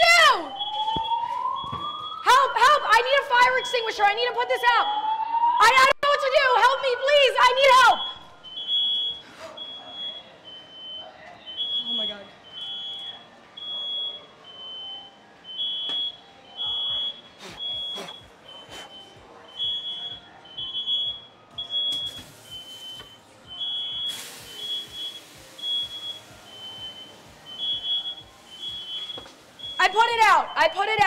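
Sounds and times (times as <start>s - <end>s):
smoke alarm beeping: 0.0s - 4.0s, 7.6s - 31.0s
broad hiss: 24.1s - 25.6s.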